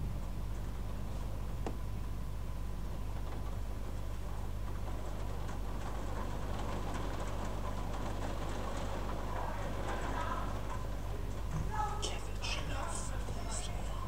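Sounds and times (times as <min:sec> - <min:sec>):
low electrical hum and hiss: 0:00.0 - 0:14.0.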